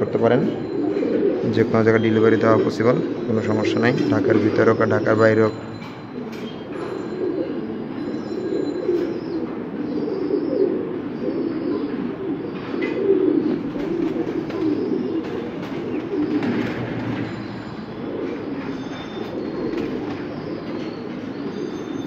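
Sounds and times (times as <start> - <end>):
pigeons cooing: 0.0 - 22.0.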